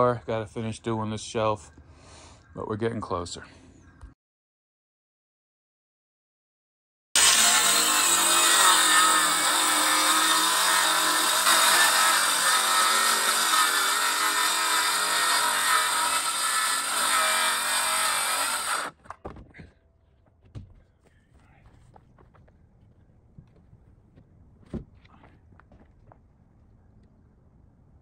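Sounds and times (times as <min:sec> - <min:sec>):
power tool whining: 0:07.2 - 0:18.9.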